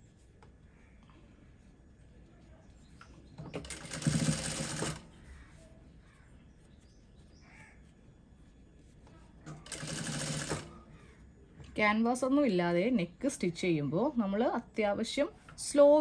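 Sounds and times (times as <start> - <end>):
sewing machine stitching: 3.5 - 5.1, 9.5 - 10.8.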